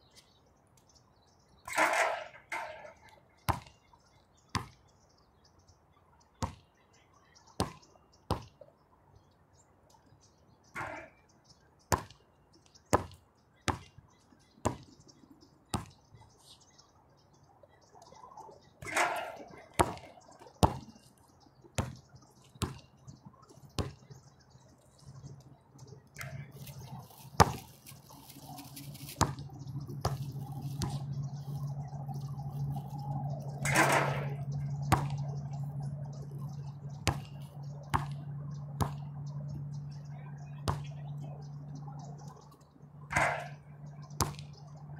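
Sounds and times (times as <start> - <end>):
low steady hum: 16.2 - 44.9
basketball bouncing on hard court: 19.8 - 20.8, 21.8 - 22.0, 34.9 - 35.2, 37.0 - 38.2, 38.8 - 39.1.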